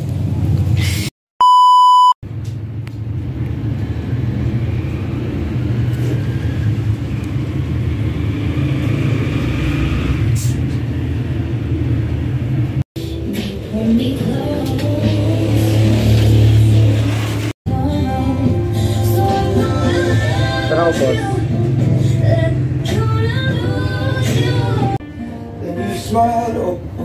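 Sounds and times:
electronic beep: 1.4 - 2.2.

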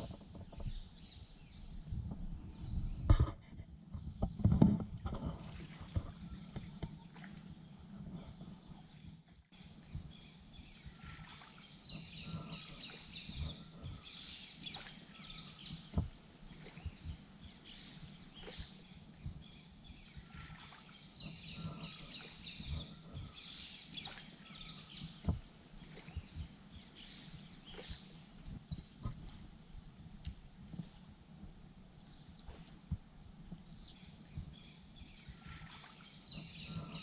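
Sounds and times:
birds chirping and twittering: 0.0 - 37.0
canoe paddle knocks: 15.5 - 17.2, 24.9 - 26.6.

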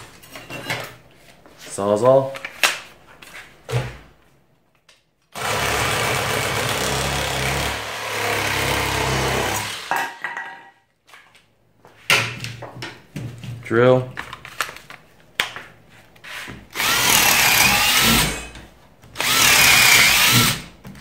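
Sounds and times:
reciprocating saw cutting wood: 16.8 - 18.5.

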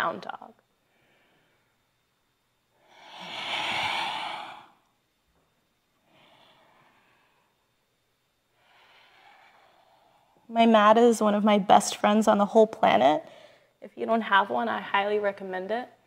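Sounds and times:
woman breathing: 0.8 - 2.1, 2.7 - 4.9, 5.9 - 10.5, 13.2 - 13.8.

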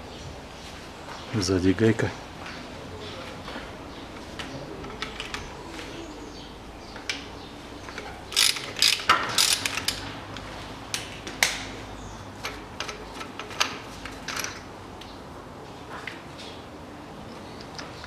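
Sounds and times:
ratchet wrench clicking: 8.3 - 10.0.

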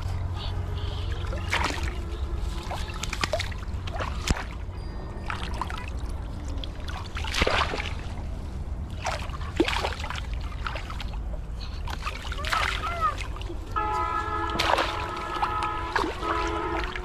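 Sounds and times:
steady low rumble: 0.0 - 17.0
water splashing and sloshing: 0.0 - 17.0
hands working in water: 1.2 - 17.0
fish thrashing at surface: 6.7 - 8.1, 14.4 - 17.0.

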